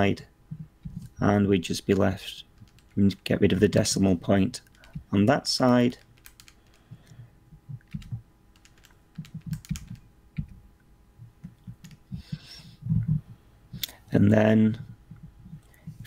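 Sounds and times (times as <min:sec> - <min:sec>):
keyboard typing clicks: 0:02.6 - 0:03.0, 0:06.0 - 0:07.0, 0:07.8 - 0:10.6, 0:11.4 - 0:12.0.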